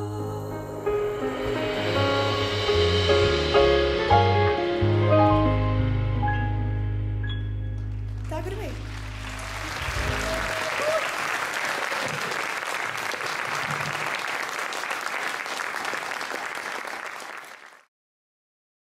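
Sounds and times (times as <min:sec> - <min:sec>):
audience applauding: 0:07.8 - 0:17.9.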